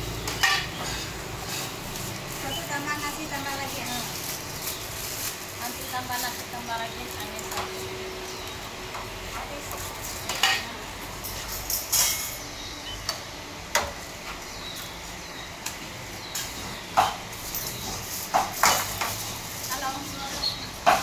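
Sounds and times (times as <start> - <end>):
steady background noise: 0.0 - 21.0
metal utensils clinking on pots: 0.1 - 8.0, 8.9 - 13.2, 16.4 - 21.0.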